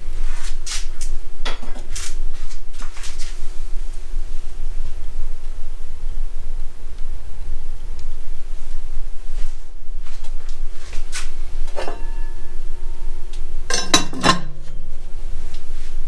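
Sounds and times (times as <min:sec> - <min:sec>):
steady low hum: 0:00.0 - 0:16.0
metal lid clanking on pot: 0:11.7 - 0:12.8, 0:13.7 - 0:14.8.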